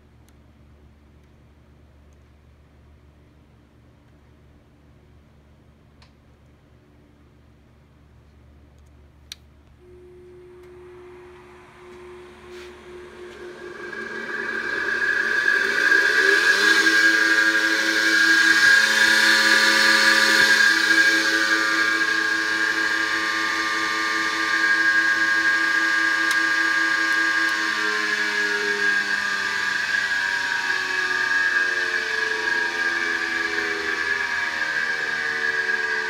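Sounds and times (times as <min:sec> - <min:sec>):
electric motor whining: 0:09.8 - 0:36.0.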